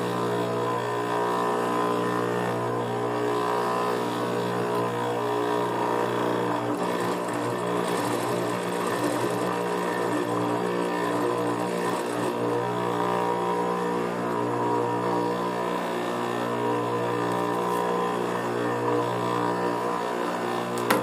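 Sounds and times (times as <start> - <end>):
sewing machine motor humming: 0.0 - 21.0
sewing machine stitching suede: 1.8 - 15.7.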